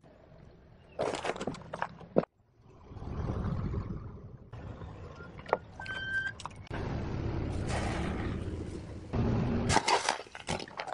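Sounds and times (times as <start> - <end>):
car engine and tyre noise: 0.0 - 10.9.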